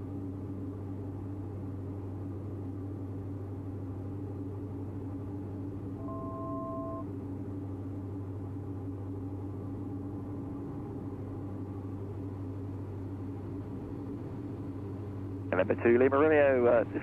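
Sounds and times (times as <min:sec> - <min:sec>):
aircraft cabin engine drone: 0:00.0 - 0:17.0
two-note electronic tone: 0:06.0 - 0:07.1.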